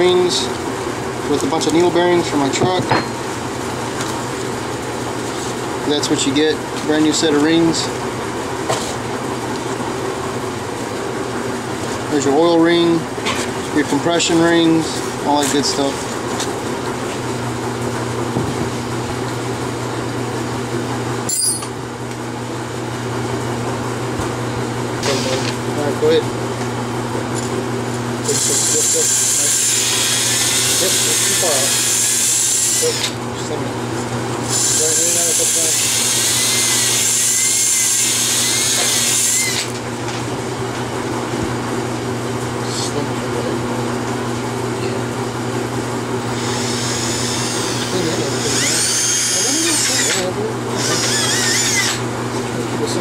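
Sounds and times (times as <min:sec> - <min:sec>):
appliance humming: 0:00.0 - 0:53.0
high metallic clink: 0:21.3 - 0:21.8
drill spinning abrasive hone: 0:25.0 - 0:25.6, 0:28.2 - 0:33.2, 0:34.4 - 0:39.7, 0:46.3 - 0:52.0.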